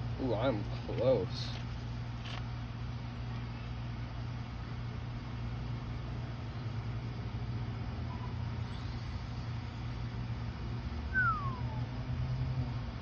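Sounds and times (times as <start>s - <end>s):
low mechanical hum: 0.0s - 13.0s
whistle falling in pitch: 11.1s - 11.9s.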